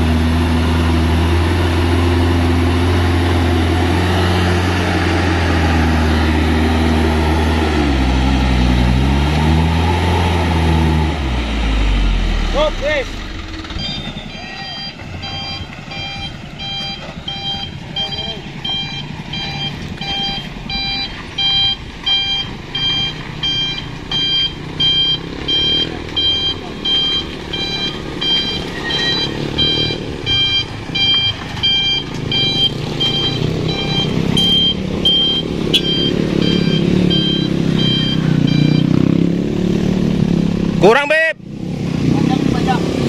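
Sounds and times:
diesel engine running: 0:00.0 - 0:43.0
reversing alarm beeping: 0:11.8 - 0:39.3.

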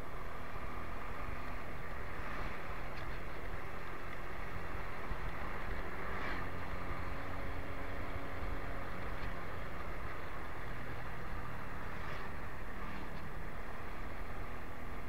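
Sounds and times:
road and wind noise: 0:00.0 - 0:15.0.

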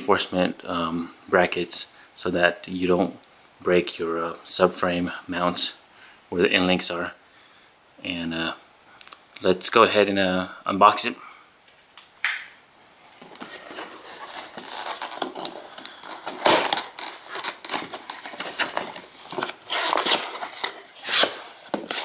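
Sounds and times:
cardboard box being torn open: 0:13.3 - 0:22.0.

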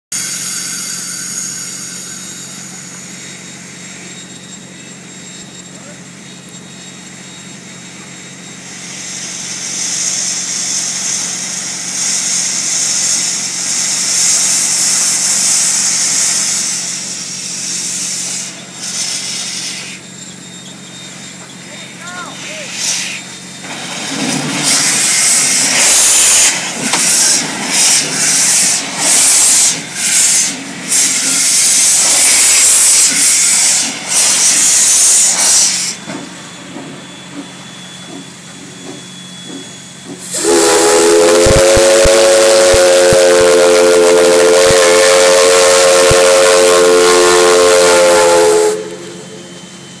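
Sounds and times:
steam hissing blasts: 0:07.8 - 0:50.0
steam whistle blast: 0:24.6 - 0:36.0, 0:40.2 - 0:50.0.

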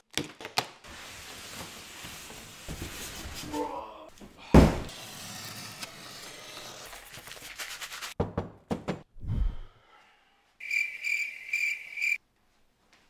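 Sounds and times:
cricket chirp sound effect: 0:10.6 - 0:12.2.

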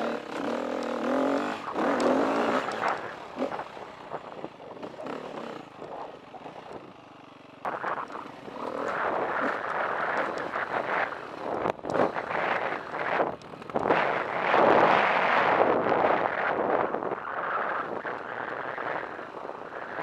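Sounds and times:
dirt bike engine revving: 0:00.0 - 0:16.7
wind on microphone: 0:07.7 - 0:20.0.

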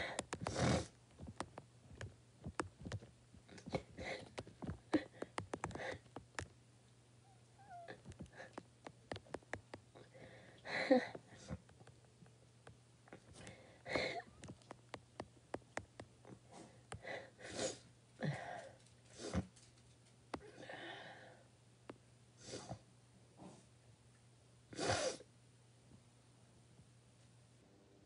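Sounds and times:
woman crying quietly: 0:10.0 - 0:11.6, 0:13.6 - 0:14.4.

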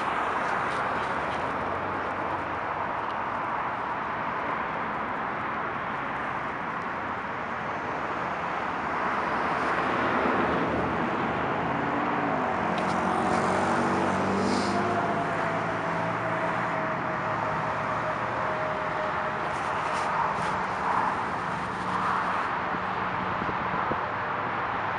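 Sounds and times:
road traffic going by: 0:00.0 - 0:24.9
passing vehicle engine hum: 0:07.7 - 0:24.9.

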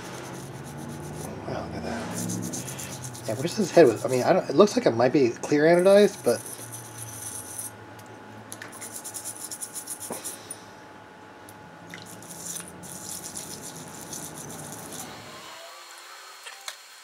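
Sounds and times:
plastic brush scrubbing in water: 0:00.0 - 0:04.4
ultrasonic cleaner hum: 0:00.0 - 0:17.0.

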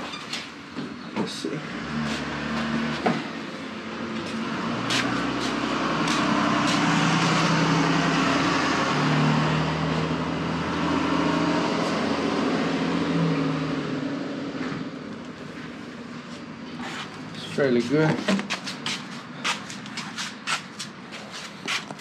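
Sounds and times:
vehicle engine running: 0:01.4 - 0:18.0.

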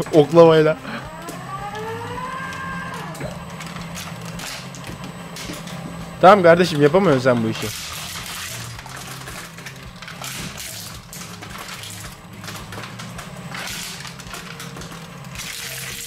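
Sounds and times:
shredder motor hum: 0:00.0 - 0:16.0
plastic toys scraping and crunching: 0:02.4 - 0:05.8, 0:06.6 - 0:16.0.

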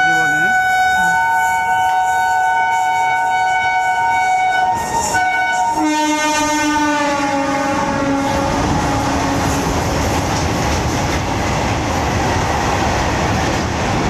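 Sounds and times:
electric locomotive horn chord: 0:00.0 - 0:09.7.

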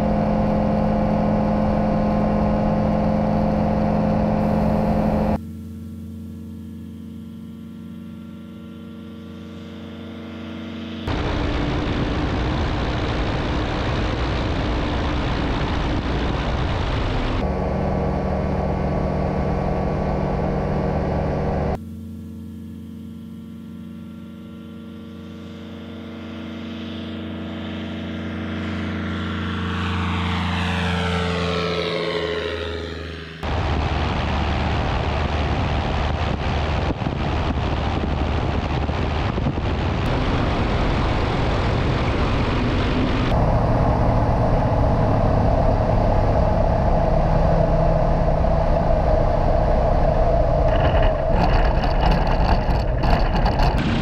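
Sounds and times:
light aircraft engine: 0:00.0 - 0:54.0
heavy wind rush: 0:11.1 - 0:17.9, 0:33.4 - 0:54.0.

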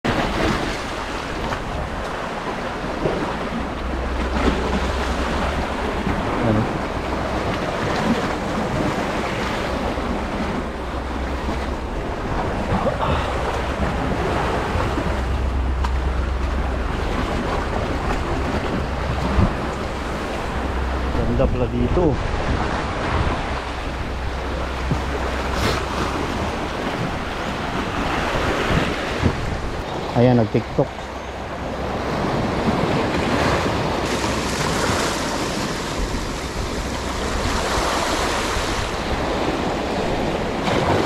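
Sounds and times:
sea waves: 0:00.0 - 0:41.0
wind buffeting microphone: 0:00.1 - 0:41.0.

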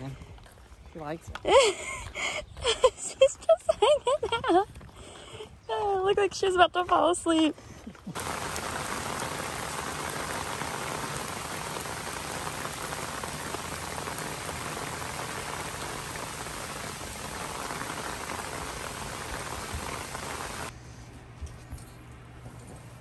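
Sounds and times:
heavy rain on pavement: 0:08.1 - 0:20.7.

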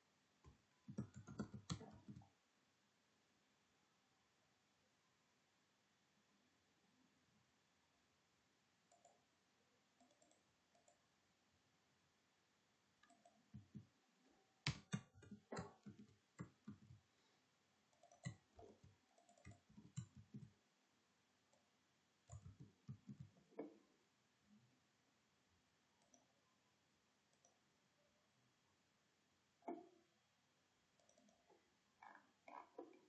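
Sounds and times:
keyboard typing: 0:00.4 - 0:02.3, 0:10.0 - 0:11.0, 0:13.0 - 0:14.0, 0:14.6 - 0:17.0, 0:17.9 - 0:20.6, 0:21.6 - 0:23.8.

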